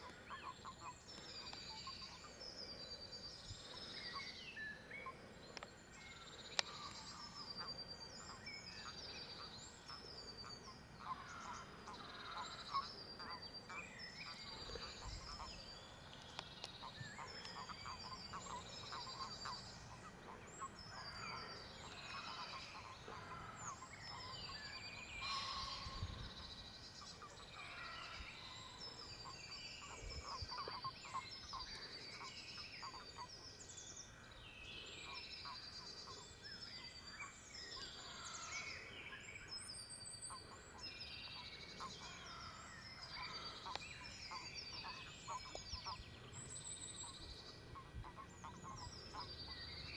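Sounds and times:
chorus of frogs calling: 16.4 - 26.4.

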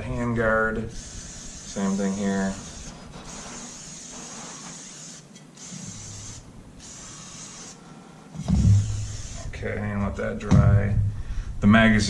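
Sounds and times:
aerosol can hissing: 0.9 - 7.8, 8.4 - 9.5.

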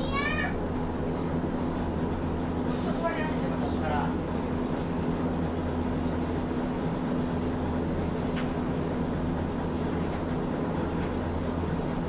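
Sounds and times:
tram equipment low hum: 0.0 - 12.0.

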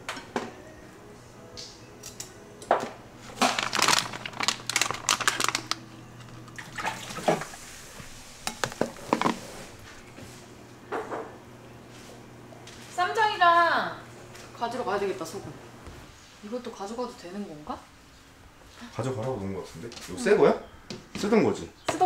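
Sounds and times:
plastic pouch crinkling: 3.3 - 7.2
plates and dishes clattering: 8.4 - 9.6.

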